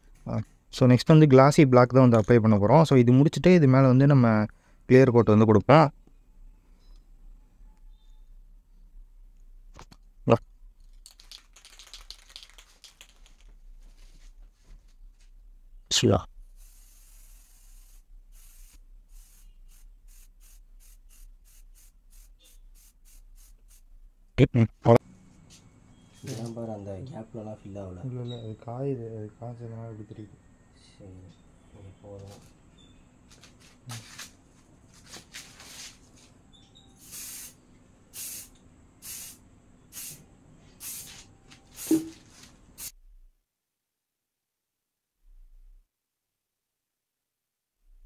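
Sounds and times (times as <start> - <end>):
spray paint can hissing: 11.1 - 13.4, 16.6 - 23.9, 37.0 - 40.2, 40.8 - 43.0.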